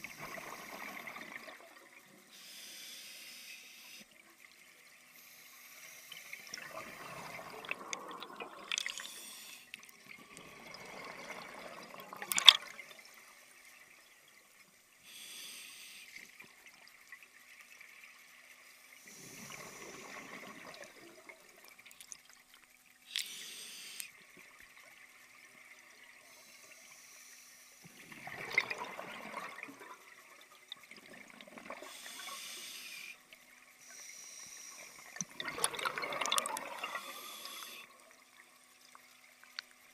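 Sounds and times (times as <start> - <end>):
bubbly gurgling exhalations: 6.6 - 9.2, 28.0 - 30.0, 35.2 - 37.8
hissing inhalations: 8.8 - 9.8, 23.1 - 24.1, 31.8 - 33.2, 36.8 - 37.9.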